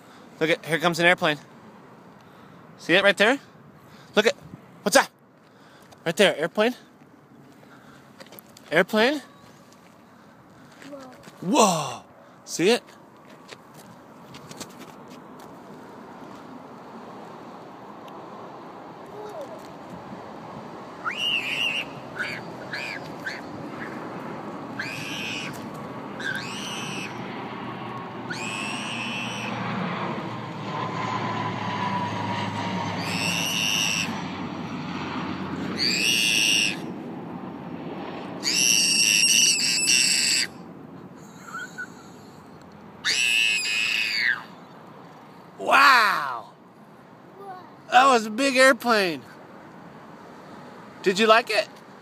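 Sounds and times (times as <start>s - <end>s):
child squealing and shouting: 19.1s - 19.6s, 21.0s - 24.0s, 24.8s - 25.6s, 26.2s - 27.2s, 28.3s - 29.5s, 33.0s - 34.1s, 35.8s - 36.9s, 38.4s - 40.5s, 43.0s - 44.6s, 45.6s - 46.5s, 47.4s - 47.8s.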